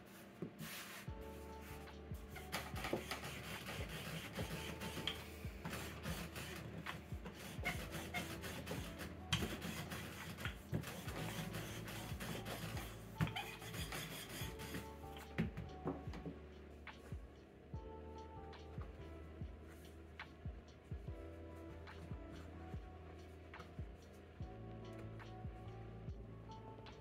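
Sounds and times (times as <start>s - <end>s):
faint background music: 0.0s - 27.0s
rolling pin rolling dough: 0.1s - 17.4s.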